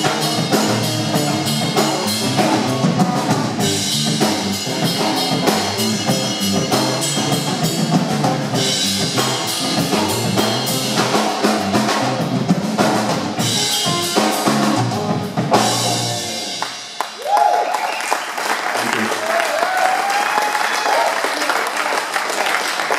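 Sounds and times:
rock band playing: 0.0 - 17.8.

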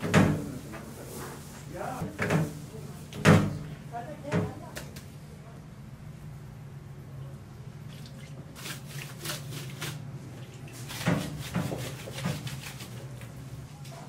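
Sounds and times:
wet squishes of raw chicken: 7.9 - 13.5.

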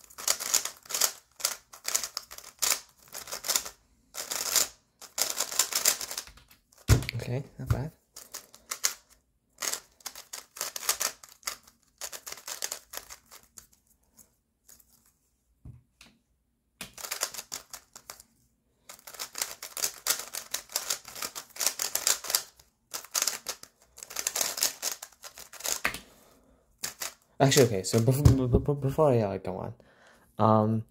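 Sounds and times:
speedcube clicking and clacking: 0.0 - 7.2, 8.1 - 13.8, 16.8 - 18.3, 18.9 - 26.1, 26.8 - 28.0.

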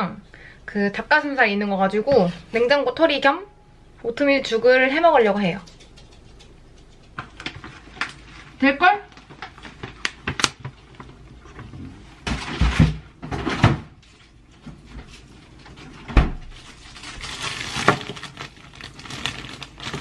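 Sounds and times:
plastic bag rustling: 7.3 - 11.6, 15.1 - 20.0.

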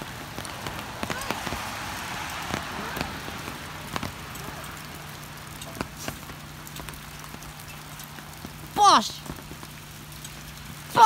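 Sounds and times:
rain hissing on puddles: 0.0 - 11.0
raindrops tapping: 0.0 - 11.0.

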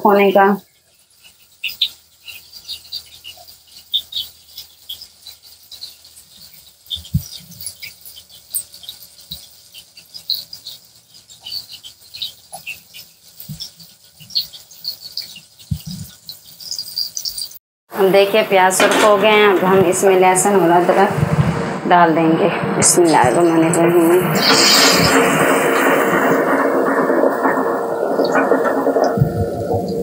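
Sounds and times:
onions sizzling in a pot: 0.0 - 21.3.

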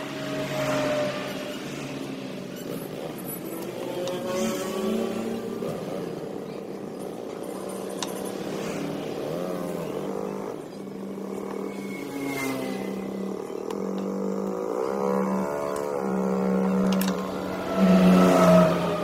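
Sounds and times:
music of held gliding tones: 9.1 - 19.0.

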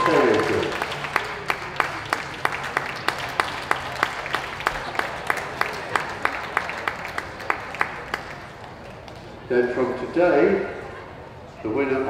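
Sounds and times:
audience applauding: 0.0 - 9.2
close sharp hand clapping: 0.0 - 9.2.

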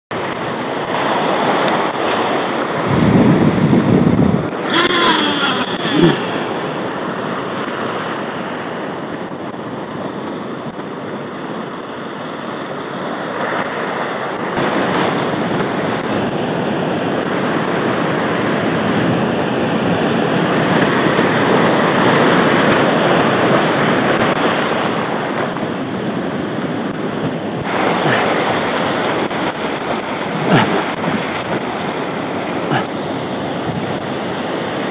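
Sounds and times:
surf breaking over rocks: 0.1 - 34.9
wind buffeting microphone: 0.1 - 34.9
brief gliding whine: 4.6 - 6.7.

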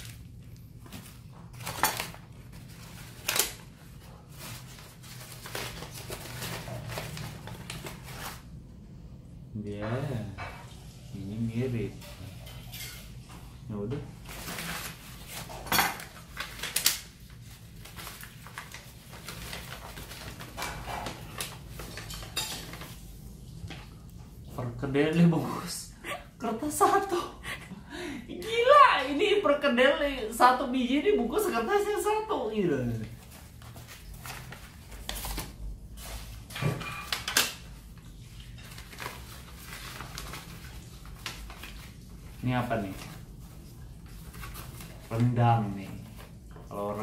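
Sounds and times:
paper wrappers crinkling: 0.0 - 8.6, 14.1 - 24.8, 32.8 - 47.0.

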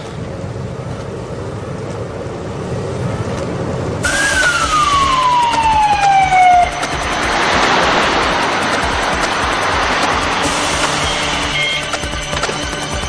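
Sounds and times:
rushing noise of moving vehicle: 0.0 - 13.0
low in-car rumble: 0.2 - 13.0
ambulance siren wailing: 4.0 - 13.0.

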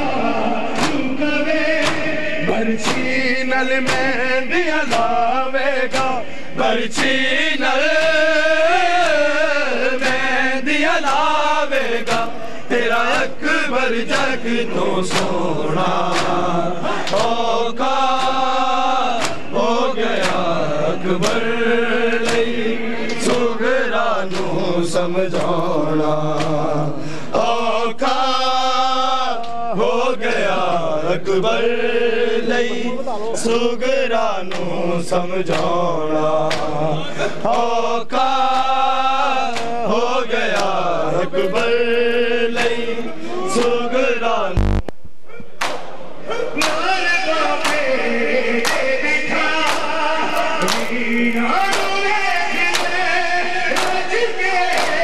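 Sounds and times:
men chanting a lament: 0.0 - 44.6, 45.3 - 55.0
hands slapping chests: 0.8 - 1.2, 1.8 - 2.2, 2.8 - 3.1, 3.9 - 4.1, 10.0 - 10.3, 15.1 - 15.4, 16.1 - 16.4, 17.0 - 17.4, 19.2 - 19.4, 20.2 - 20.5, 21.2 - 21.4, 44.6 - 45.9, 50.6 - 51.0.

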